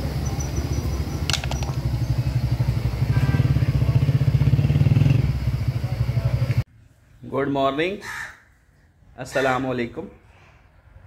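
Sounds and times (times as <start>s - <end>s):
motorcycle engine putter: 0.4s - 2.3s.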